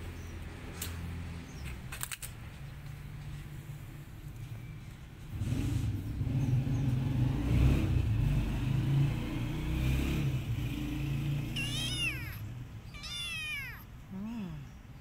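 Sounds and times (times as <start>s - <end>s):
kitten meowing: 11.5s - 14.0s.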